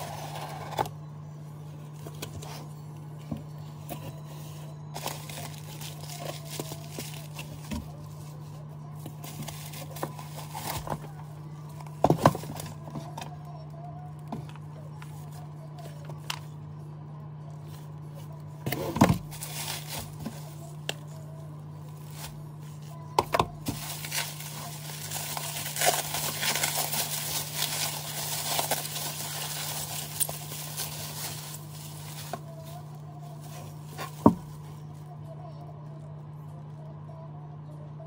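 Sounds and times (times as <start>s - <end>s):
bubble wrap crinkling: 4.9s - 14.4s, 17.6s - 35.1s.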